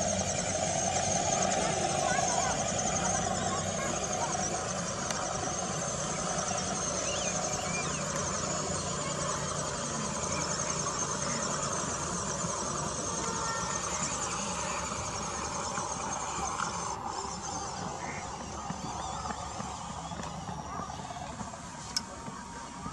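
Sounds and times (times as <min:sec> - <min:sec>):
toy truck motor whining: 0:00.0 - 0:22.9.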